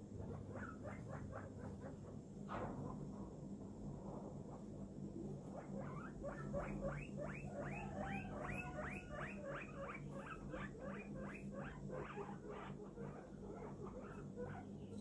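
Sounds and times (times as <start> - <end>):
low steady hum: 0.0 - 15.0
guinea pig squealing: 0.2 - 2.1, 5.2 - 15.0.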